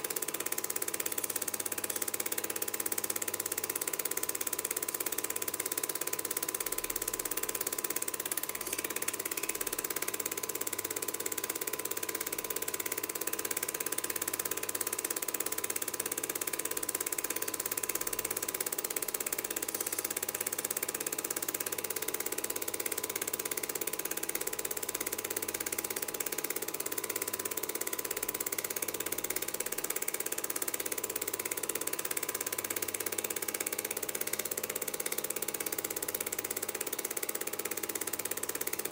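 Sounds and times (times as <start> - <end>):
film projector clatter: 0.0 - 38.9.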